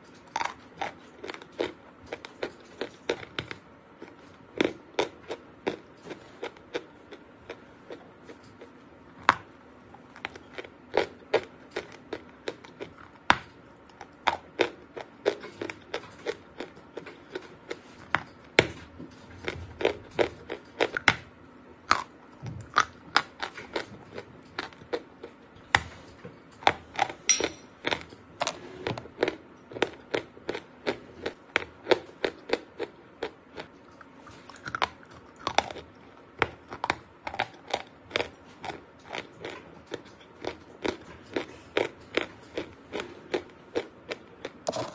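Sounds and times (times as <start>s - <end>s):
chalk being chewed and crunched: 29.2s - 44.9s.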